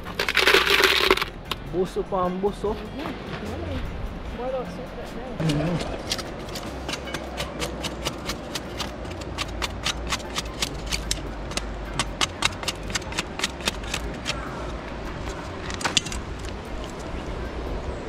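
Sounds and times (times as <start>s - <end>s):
knife chopping dry wood: 5.5s - 14.5s.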